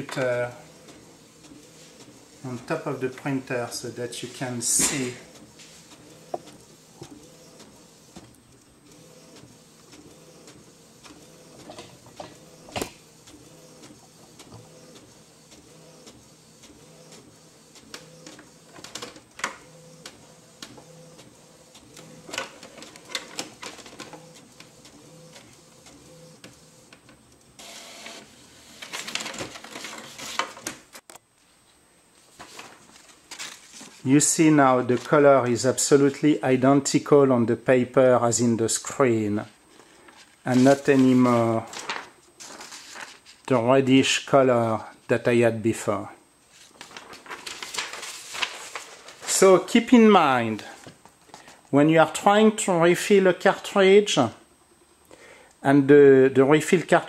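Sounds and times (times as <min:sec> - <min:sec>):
inkjet printer whirring: 0:00.0 - 0:30.8.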